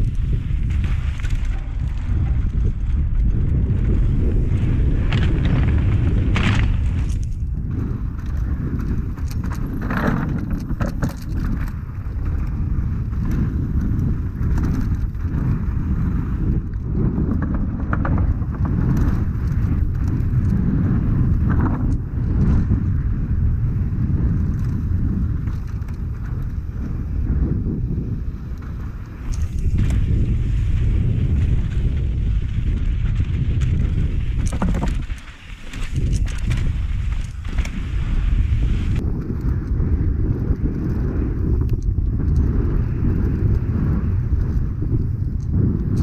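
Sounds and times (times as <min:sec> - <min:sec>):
bike rattling over rough ground: 0:00.0 - 0:46.0
wind rumble on microphone: 0:00.0 - 0:46.0
tyres rolling on dirt: 0:28.2 - 0:41.5.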